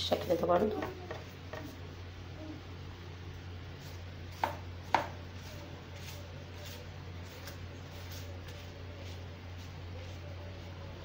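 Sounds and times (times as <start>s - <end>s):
utensil knocking on kitchenware: 4.4s - 5.2s.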